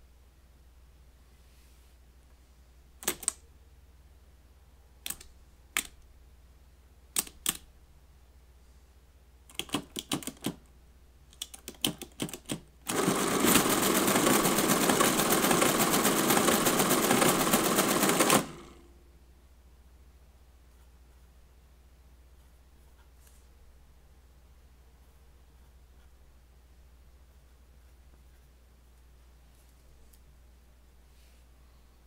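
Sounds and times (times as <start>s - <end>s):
calculator mechanism clattering: 11.5s - 18.7s.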